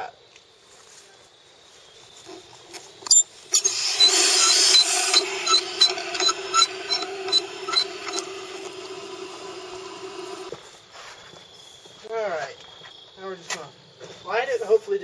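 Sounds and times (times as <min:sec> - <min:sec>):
valve clicks: 0:03.0 - 0:10.5
handwheel squeaking: 0:03.1 - 0:10.5
water rushing through valve: 0:03.5 - 0:10.5
whine of water flow: 0:03.6 - 0:10.5.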